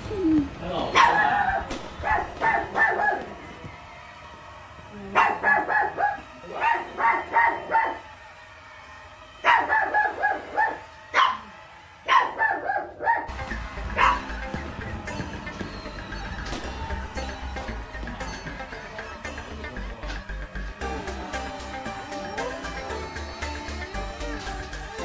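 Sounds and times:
small dog barking: 0.9 - 3.4, 5.1 - 8.0, 9.4 - 11.5, 12.1 - 13.3, 14.0 - 14.3.

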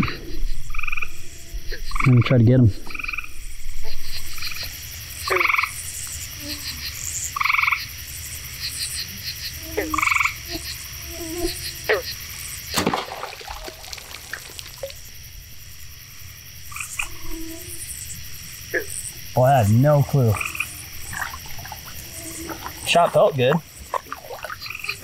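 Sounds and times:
frogs calling: 0.0 - 25.0
insects chirping: 0.0 - 25.0
bow snapping: 12.7 - 15.0.

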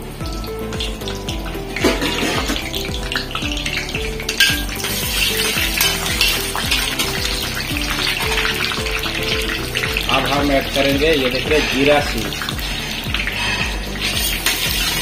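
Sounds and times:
background music with steady beat: 0.0 - 15.0
spices sizzling in hot oil: 0.0 - 15.0
metal spatula scraping a pan: 1.7 - 2.8, 10.7 - 15.0.

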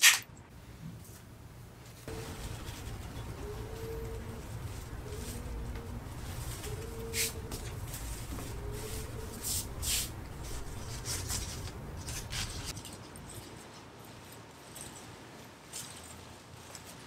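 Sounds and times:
leafy sprigs rustling: 1.7 - 17.0
hand brushing over floor tiles: 4.6 - 12.7.

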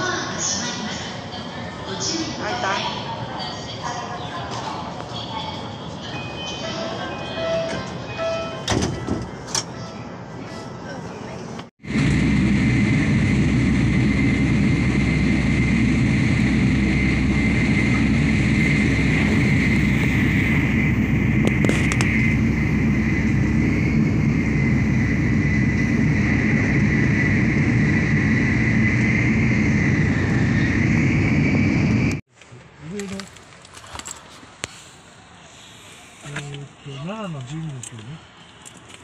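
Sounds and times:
train cabin rumble: 4.3 - 12.2, 16.4 - 32.2
high whine: 11.8 - 32.2.

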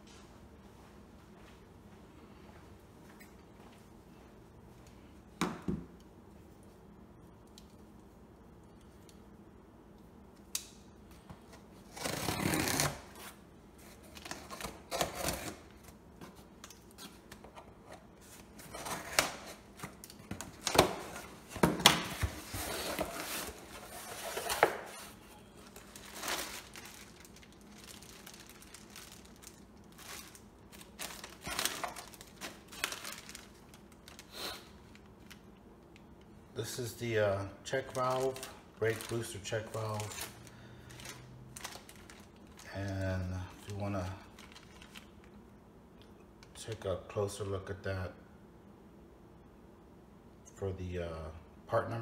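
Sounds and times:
packing tape being cut: 11.9 - 13.2, 14.2 - 15.6
paper and plastic bags rustling: 18.2 - 35.4, 37.0 - 43.0, 43.6 - 45.2.

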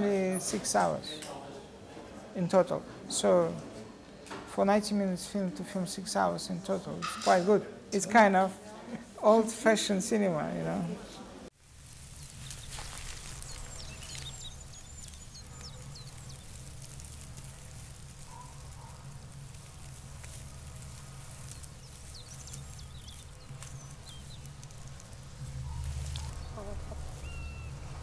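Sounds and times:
faint rustling: 11.6 - 28.0
steady low rumble: 11.7 - 28.0
ticking: 11.7 - 28.0
small birds chirping: 11.8 - 28.0.

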